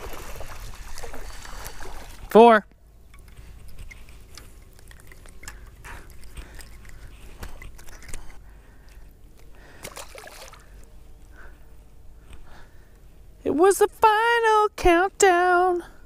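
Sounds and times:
water splashing and dripping: 0:00.0 - 0:02.3, 0:09.8 - 0:10.8.

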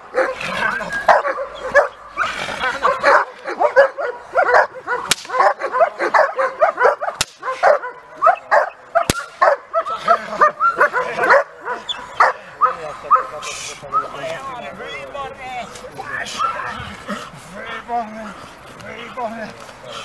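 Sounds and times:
dog barking and yelping: 0:00.0 - 0:14.2, 0:16.4 - 0:16.7
sharp cracks: 0:05.1 - 0:05.6, 0:07.2 - 0:07.5, 0:09.0 - 0:09.4.

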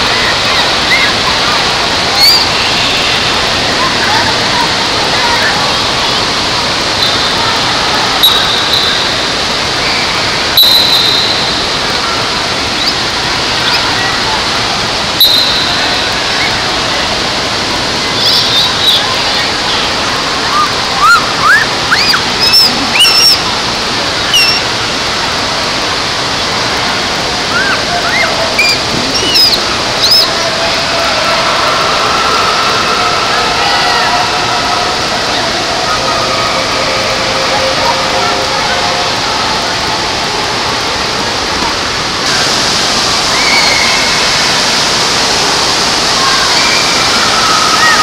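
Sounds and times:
crowd voices: 0:00.0 - 0:48.0
water rushing: 0:00.0 - 0:48.0
children squealing: 0:02.1 - 0:03.2, 0:20.4 - 0:23.5, 0:24.2 - 0:24.7, 0:27.5 - 0:39.8, 0:43.2 - 0:44.6, 0:46.2 - 0:48.0.

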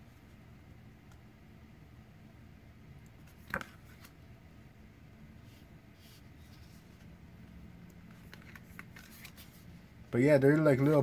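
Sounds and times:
paper rustles: 0:08.1 - 0:09.7.

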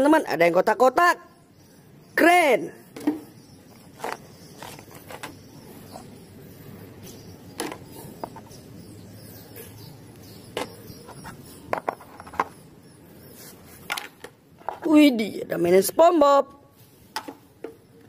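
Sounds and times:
faint background noise: 0:00.0 - 0:18.0.

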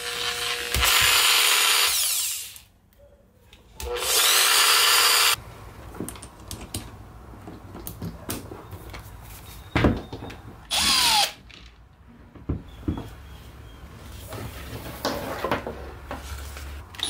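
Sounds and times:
cordless drill running: 0:00.0 - 0:02.6, 0:03.9 - 0:05.4, 0:10.7 - 0:11.4.

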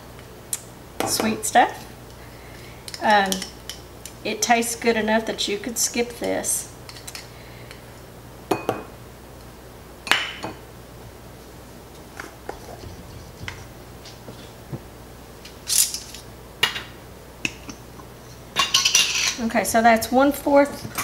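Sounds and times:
utensils clinking on ceramic bowl: 0:18.6 - 0:19.4.

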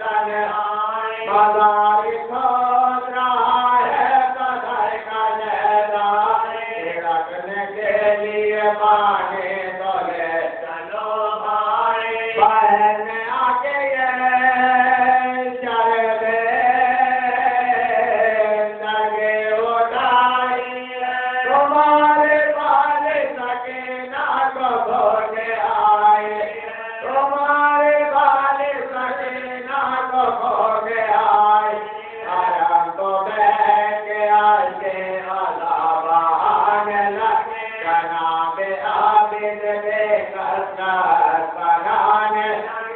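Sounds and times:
man chanting: 0:00.0 - 0:42.9.

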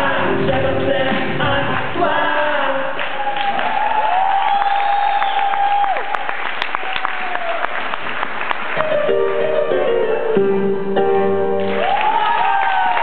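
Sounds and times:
crowd noise: 0:00.0 - 0:13.0
scattered clapping: 0:03.0 - 0:09.0
held keyboard chords: 0:08.8 - 0:11.9.

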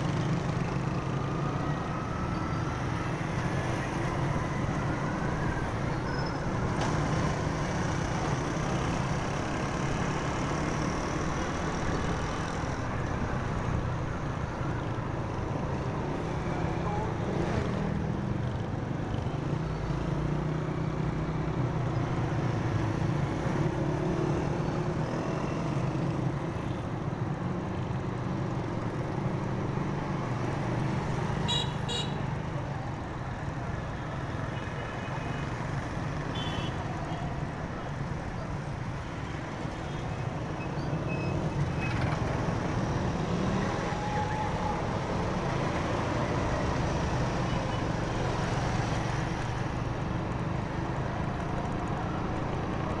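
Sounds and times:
road and wind noise: 0:00.0 - 0:53.0.

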